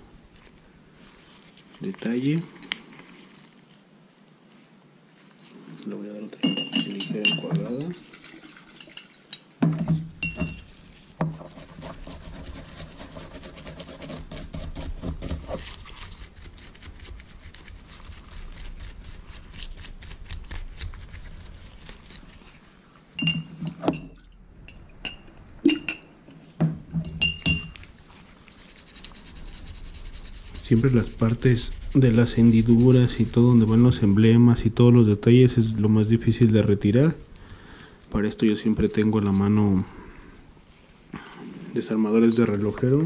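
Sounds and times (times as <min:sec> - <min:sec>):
glass and metal clinks: 0:06.4 - 0:07.9, 0:10.2 - 0:10.7, 0:23.2 - 0:26.2, 0:27.0 - 0:27.8
scratchy rubbing of metal toy: 0:10.9 - 0:22.6, 0:28.2 - 0:34.2.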